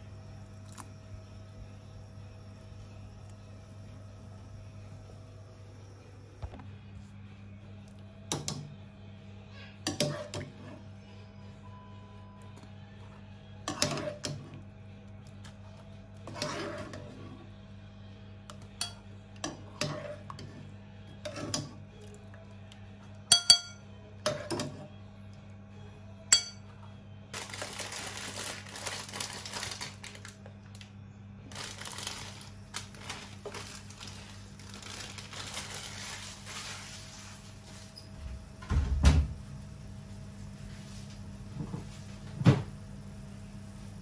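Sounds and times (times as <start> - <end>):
steady low hum: 0.0 - 27.6, 28.4 - 44.0.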